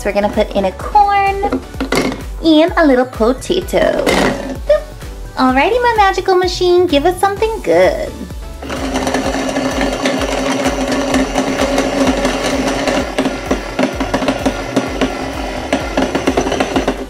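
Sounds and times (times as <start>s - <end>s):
toy food processor whirring: 8.6s - 17.0s.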